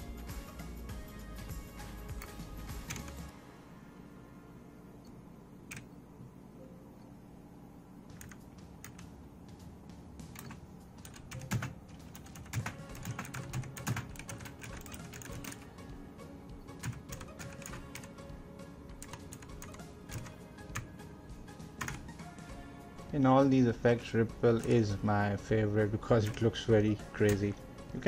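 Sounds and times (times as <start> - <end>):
clicky keyboard keys: 2.2 - 3.2, 5.7 - 5.9, 8.1 - 9.1, 10.3 - 15.6, 19.0 - 20.9.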